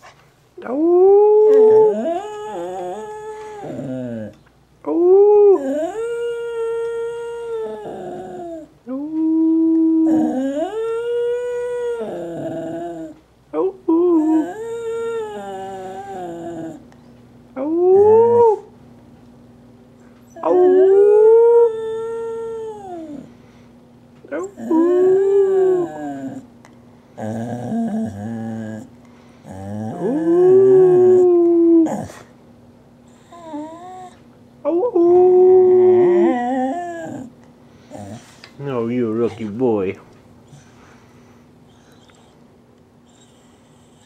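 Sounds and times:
dog howling: 0.6 - 13.2, 13.9 - 16.8, 17.6 - 18.7, 20.3 - 23.3, 24.3 - 26.5, 27.2 - 28.9, 29.5 - 32.2, 33.2 - 37.3.

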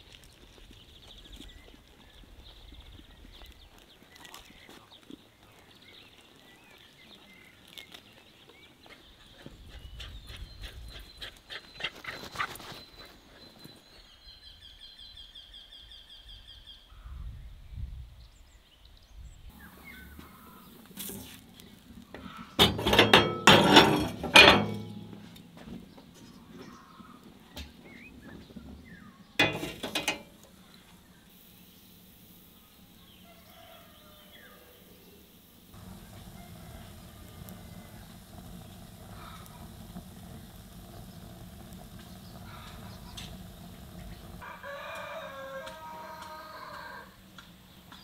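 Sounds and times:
kettle clattering on stove top: 22.1 - 25.4, 29.4 - 30.4.

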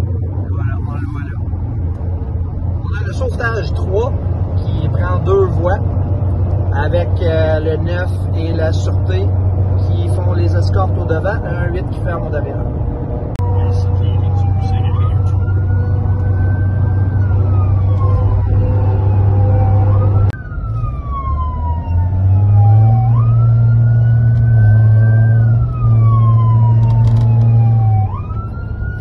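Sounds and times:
engine and road noise drone: 0.0 - 29.0
emergency vehicle siren wailing: 12.4 - 29.0.

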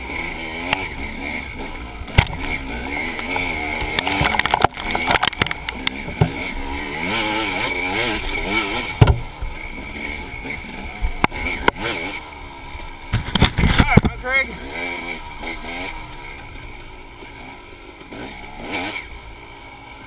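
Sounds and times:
dirt bike engine revving: 0.0 - 20.0
bike knocking over rough ground: 2.1 - 2.6, 3.8 - 6.4, 8.9 - 9.6, 13.1 - 14.2.

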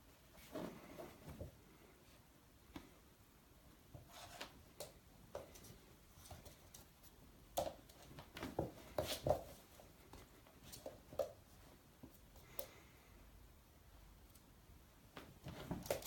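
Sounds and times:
soft rustles: 0.0 - 3.1, 3.8 - 12.9.

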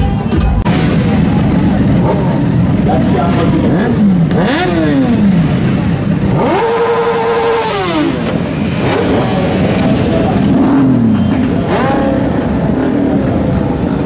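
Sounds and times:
motorcycle engines revving: 0.3 - 14.0.

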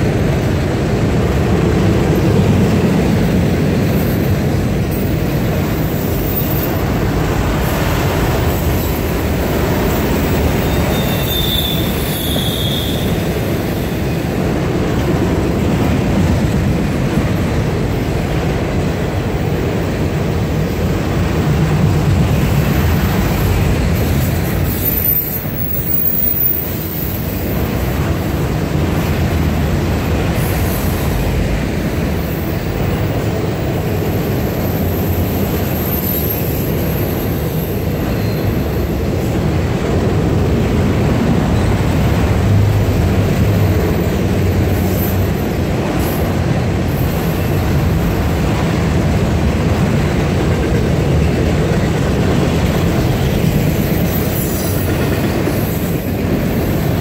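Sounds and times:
steel wheels rumbling on rail: 0.0 - 57.0
high-pitched wheel squeal: 9.8 - 13.3, 34.2 - 38.9.

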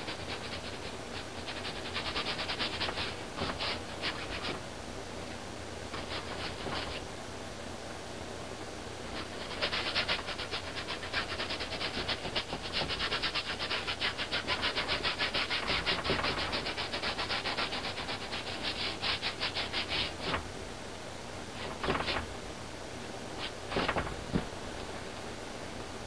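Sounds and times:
paintbrush scrubbing on canvas: 0.0 - 4.6, 6.0 - 7.0, 9.1 - 20.4.

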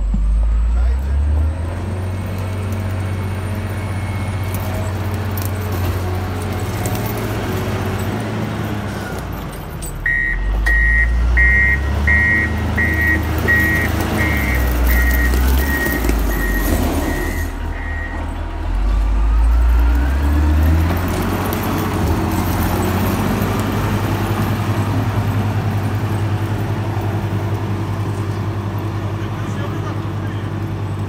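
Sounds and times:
diesel engine running: 0.0 - 31.0
reversing alarm beeping: 10.0 - 18.4.

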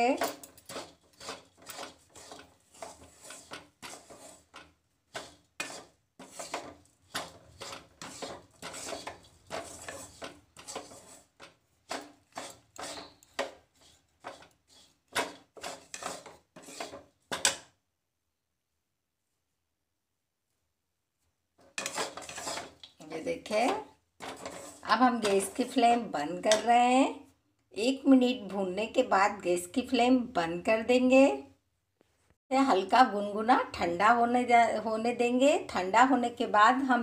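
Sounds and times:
metal spatula scraping metal pan: 0.0 - 17.7, 21.6 - 26.8.

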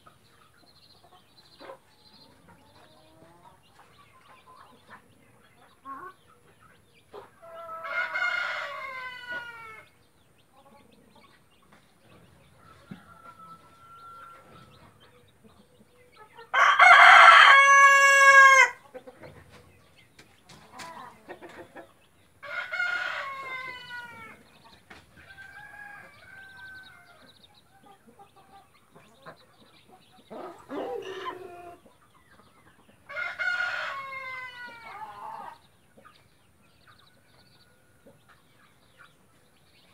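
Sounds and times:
chicken calls: 0.0 - 39.9
roosters crowing: 7.4 - 9.9, 12.4 - 15.0, 16.5 - 18.8, 22.4 - 27.4, 30.3 - 31.8, 33.0 - 35.7.

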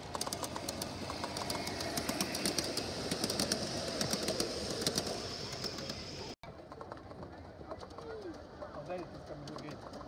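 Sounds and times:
quick irregular clicks: 0.0 - 6.0
model train wheels rumbling: 0.0 - 10.0.

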